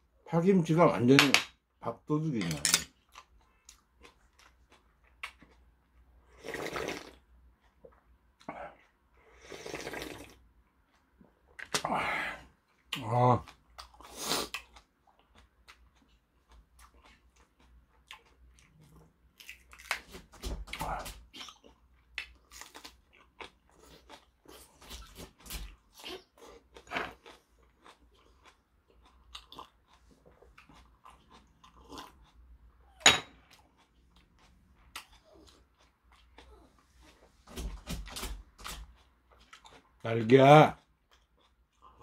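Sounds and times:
person chewing wetly: 3.0s - 11.9s, 12.5s - 37.4s, 38.5s - 40.0s, 40.8s - 42.0s.

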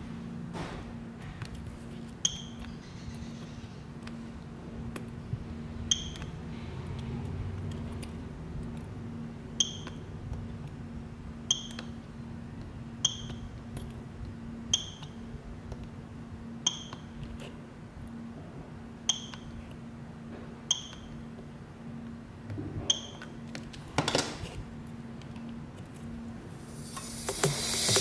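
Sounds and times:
steady low hum: 0.0s - 28.0s
spot welder snapping: 26.5s - 28.0s.

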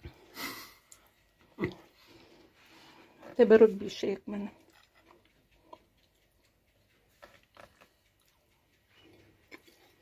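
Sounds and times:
faint chewing: 0.0s - 10.0s.

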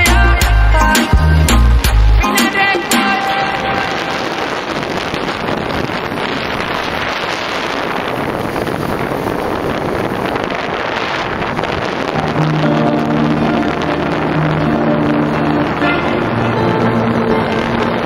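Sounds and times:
motorcycle and road noise: 0.0s - 18.0s
wind rushing over microphone: 1.0s - 18.0s.

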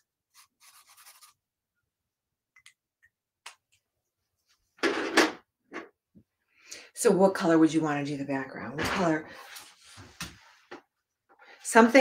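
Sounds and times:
marker scratching on paper: 0.3s - 1.4s.

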